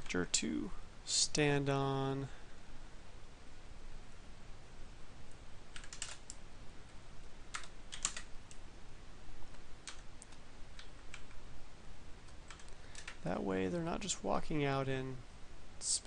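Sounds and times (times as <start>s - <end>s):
computer keyboard keystrokes: 5.7s - 6.4s, 7.5s - 8.6s, 9.8s - 11.4s, 12.3s - 13.2s.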